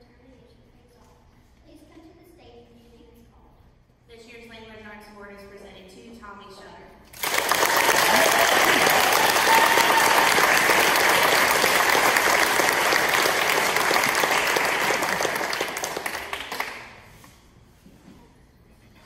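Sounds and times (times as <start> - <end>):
audience applauding: 7.2 - 17.1.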